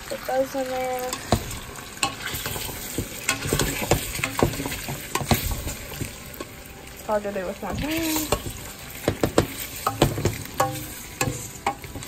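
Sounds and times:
spoon knocking and scraping pot: 0:01.1 - 0:06.5, 0:08.0 - 0:12.0.

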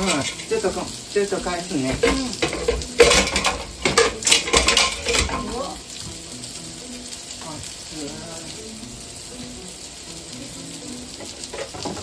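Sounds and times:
food sizzling in a frying pan: 0:00.0 - 0:12.0
utensil scraping and knocking pan: 0:01.9 - 0:05.6.

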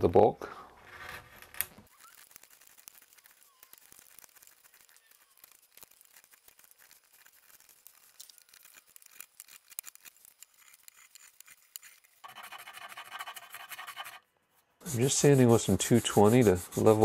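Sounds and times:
hand sanding wood: 0:02.2 - 0:14.2, 0:14.8 - 0:17.0
chisel scraping wood: 0:08.6 - 0:14.2, 0:14.8 - 0:17.0
hand plane shaving wood: 0:08.7 - 0:14.2, 0:14.8 - 0:17.0.

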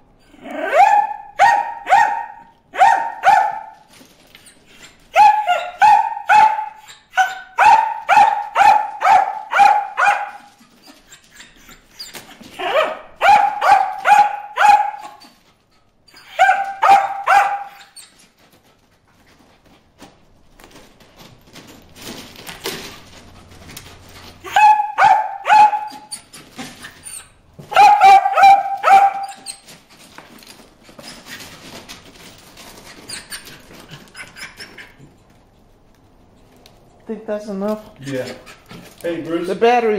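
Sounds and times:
dog barking quickly: 0:00.6 - 0:03.8, 0:05.1 - 0:10.6, 0:12.6 - 0:15.2, 0:16.2 - 0:17.8, 0:24.4 - 0:26.1, 0:27.6 - 0:29.6.

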